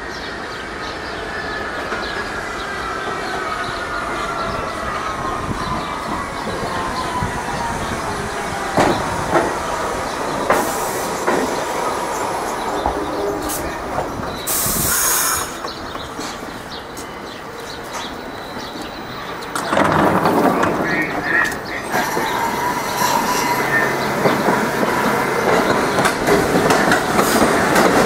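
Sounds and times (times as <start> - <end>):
clacks over rail joints: 10.4 - 11.6, 18.8 - 22.5, 23.2 - 28.0
hiss of air: 14.4 - 15.6
train wheels squealing: 21.9 - 28.0.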